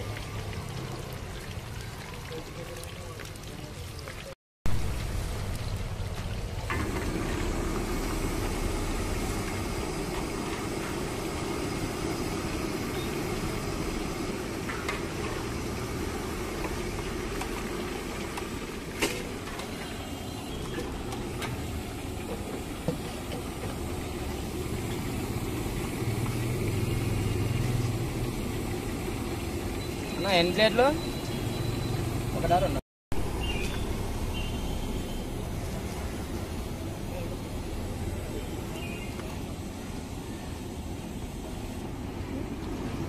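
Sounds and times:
low engine-like rumble: 4.7s - 18.8s
oil sizzling: 4.7s - 43.0s.

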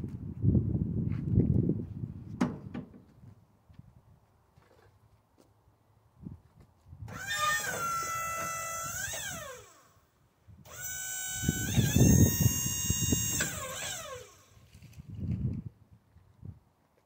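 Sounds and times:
hydraulic pump whining: 7.1s - 10.0s, 10.7s - 14.7s.

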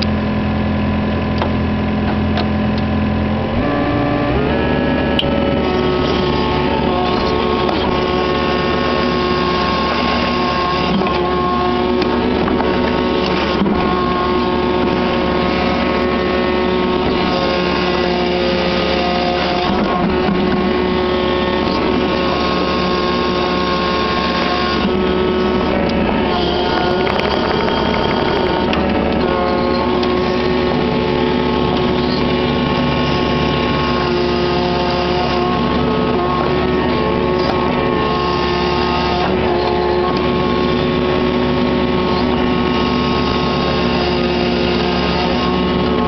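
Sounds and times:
diesel engine running: 0.0s - 46.0s
hydraulics whining: 1.2s - 46.0s.

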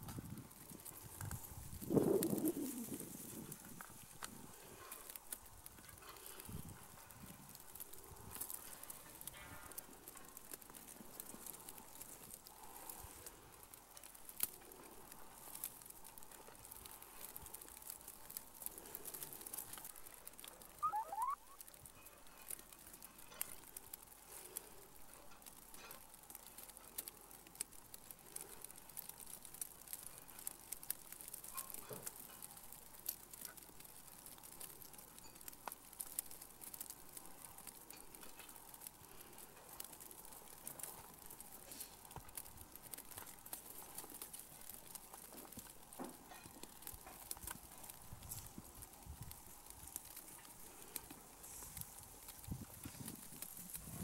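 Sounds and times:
faint outdoor ambience: 0.0s - 54.0s
light clicks and crackles: 0.0s - 54.0s
short rising chirp: 20.8s - 21.6s.

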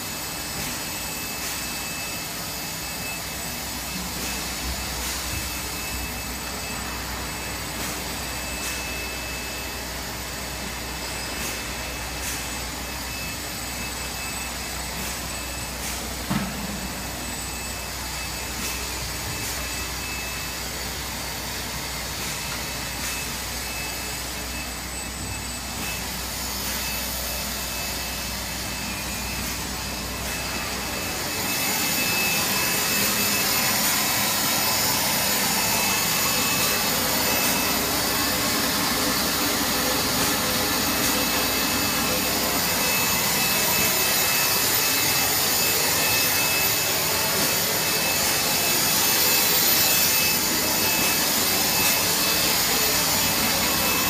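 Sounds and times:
machine mechanical drone: 0.0s - 54.0s
faint high whine: 16.3s - 54.0s.

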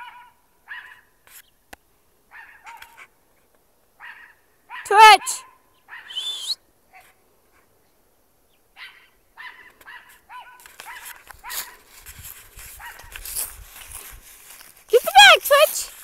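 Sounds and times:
small dog barking: 0.0s - 1.1s, 2.3s - 3.1s, 4.0s - 6.2s, 8.8s - 11.8s, 12.8s - 13.2s.

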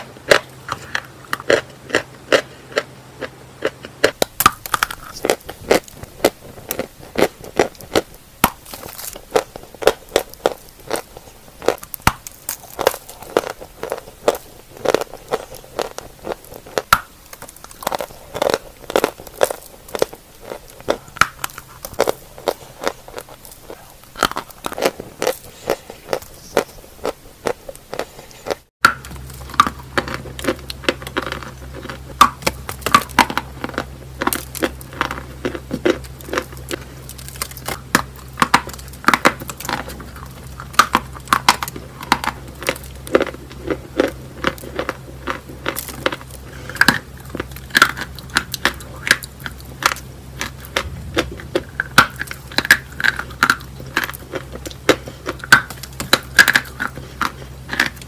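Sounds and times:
chalk crunching and chewing: 0.0s - 58.0s
low steady hum: 0.0s - 58.0s.

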